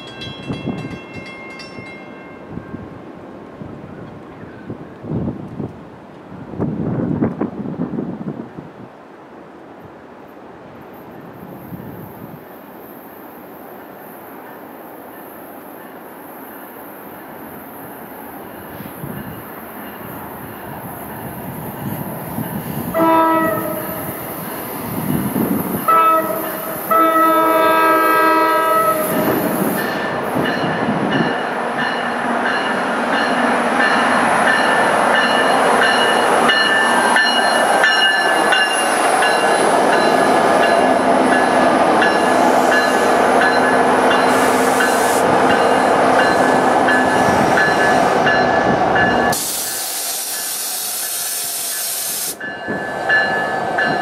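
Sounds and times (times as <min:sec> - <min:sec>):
train rumbling past: 0:00.0 - 0:54.0
train horn blasts: 0:22.9 - 0:24.4, 0:25.8 - 0:29.6
hiss: 0:44.2 - 0:45.4, 0:49.3 - 0:52.4.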